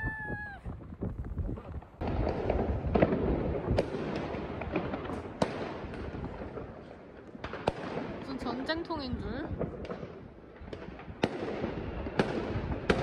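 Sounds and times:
fireworks crackling and banging: 0.0s - 13.0s
loud firecracker cracks: 9.7s - 13.0s.

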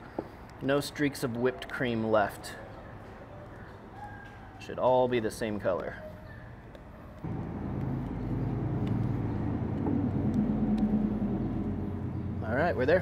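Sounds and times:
low mechanical rumble and hum: 7.2s - 13.0s.

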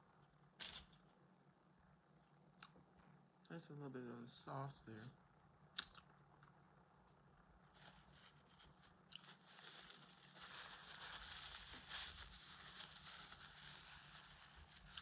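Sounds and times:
sandwich wrapper crinkling: 7.7s - 15.0s.

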